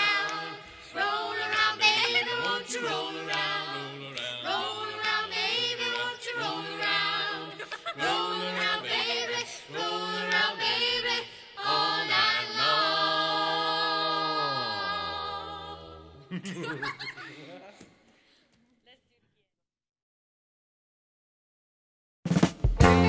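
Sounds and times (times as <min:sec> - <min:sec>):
voices singing in close harmony: 0:00.0 - 0:16.6.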